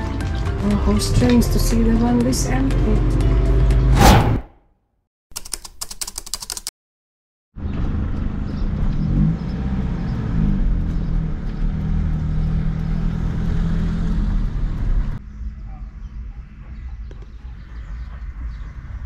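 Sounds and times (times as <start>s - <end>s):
rapid clicking: 5.4s - 6.7s.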